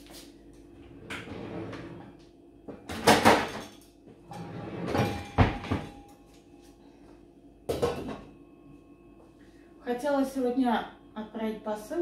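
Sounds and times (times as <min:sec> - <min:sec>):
kitchen cabinet knocks and clatter: 0:02.9 - 0:03.7, 0:04.8 - 0:06.0.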